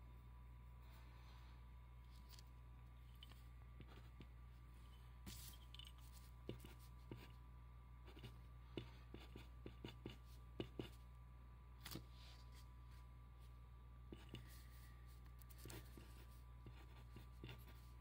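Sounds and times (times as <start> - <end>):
pen scratching on paper: 3.8 - 4.3, 5.4 - 7.4, 8.1 - 11.0, 15.5 - 18.0.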